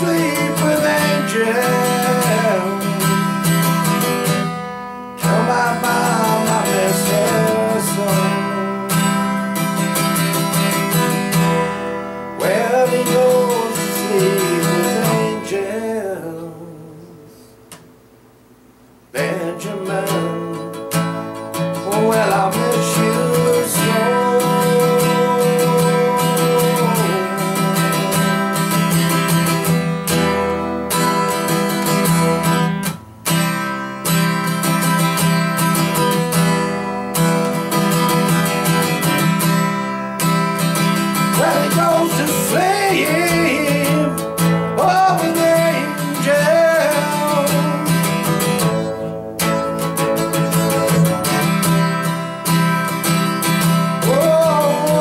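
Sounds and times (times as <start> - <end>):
man singing: 0.0 - 4.5, 5.2 - 9.8, 10.4 - 17.6, 19.1 - 29.8, 36.9 - 39.6, 40.8 - 52.6, 53.4 - 55.0
acoustic guitar strumming: 0.0 - 55.0.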